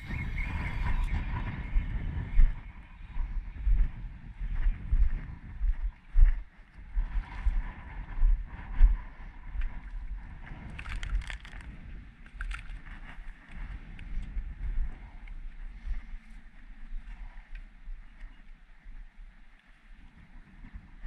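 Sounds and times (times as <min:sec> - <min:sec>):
wind on microphone: 0:00.0 - 0:21.0.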